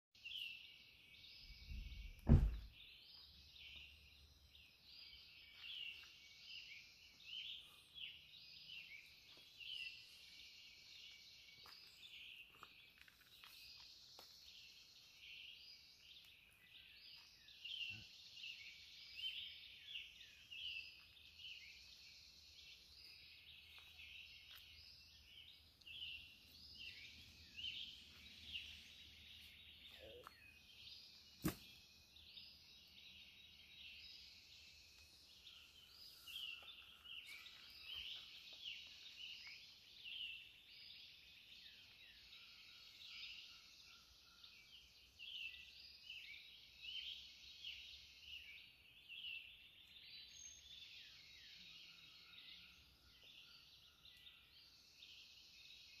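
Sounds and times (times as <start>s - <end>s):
songbirds chirping and trilling: 0.1s - 56.0s.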